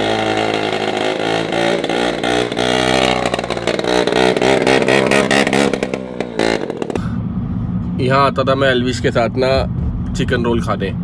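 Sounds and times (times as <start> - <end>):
quad bike engine running: 0.0 - 7.2.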